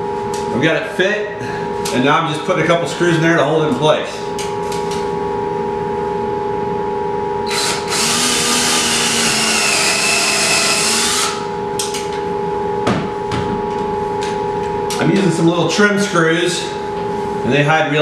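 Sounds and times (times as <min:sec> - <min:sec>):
steady hum: 0:00.0 - 0:18.0
cordless drill driving screw: 0:07.5 - 0:11.4.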